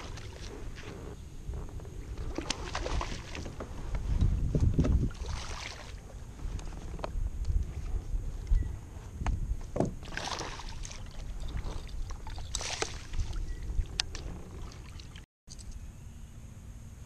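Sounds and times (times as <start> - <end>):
water splashing: 0.0 - 0.9, 2.0 - 3.7, 4.7 - 6.1, 9.8 - 15.2.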